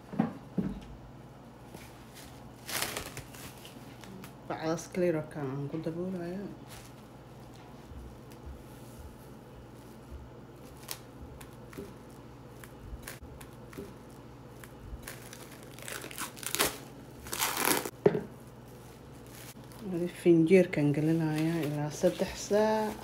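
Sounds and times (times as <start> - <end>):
cling wrap crinkling: 2.1 - 4.4, 10.6 - 17.9.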